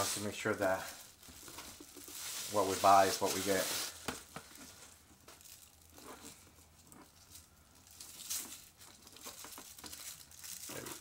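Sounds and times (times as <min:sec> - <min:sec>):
paper rustling and crinkling: 0:00.0 - 0:07.0.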